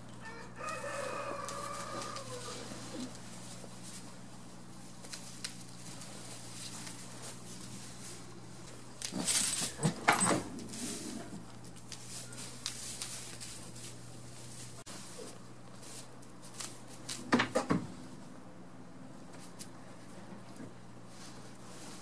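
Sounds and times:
goats rustling in straw: 0.2 - 17.2, 21.0 - 22.0.

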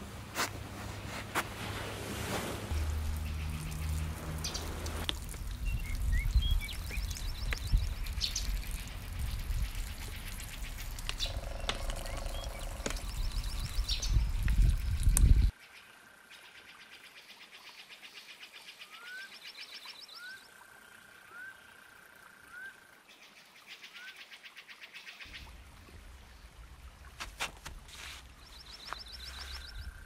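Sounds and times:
bird chirps and trills: 2.7 - 4.8, 5.6 - 15.5
low rumble: 2.7 - 15.5
footsteps through undergrowth: 27.1 - 30.0.

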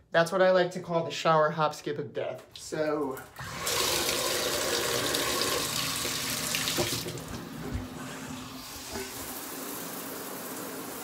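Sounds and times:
shower running: 2.6 - 11.0
water rushing into bathtub: 2.6 - 11.0.

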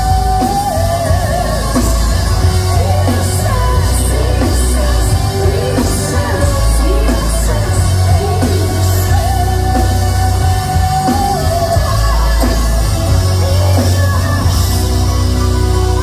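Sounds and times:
live symphonic metal band: 0.0 - 16.0.

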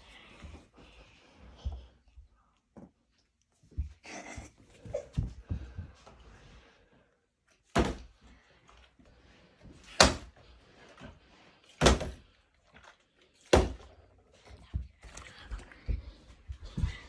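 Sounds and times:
plastic bottle landing thuds: 7.7 - 8.1.

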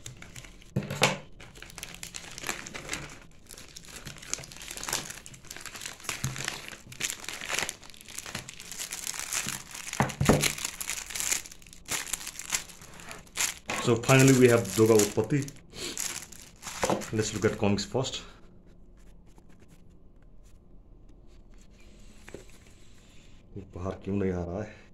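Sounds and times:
plastic packaging crinkling: 0.0 - 17.9.

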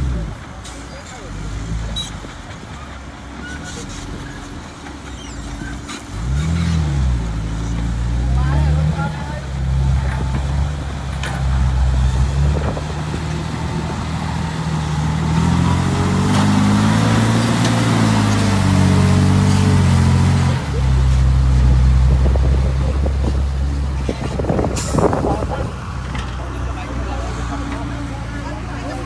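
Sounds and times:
diesel truck engine: 0.0 - 29.0.

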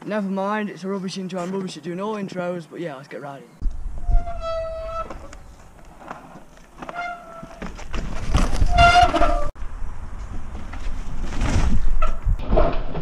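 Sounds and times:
wind on microphone: 3.6 - 5.8, 8.1 - 12.6.

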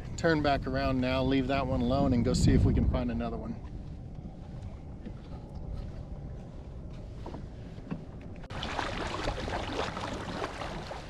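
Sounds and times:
water lapping against kayak hull: 0.0 - 11.0
wind rumble on microphone: 0.0 - 11.0.

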